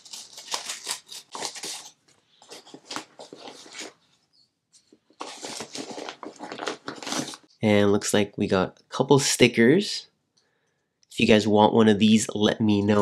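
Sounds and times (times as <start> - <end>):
packaging tearing and crinkling: 0.0 - 4.0, 5.2 - 7.5.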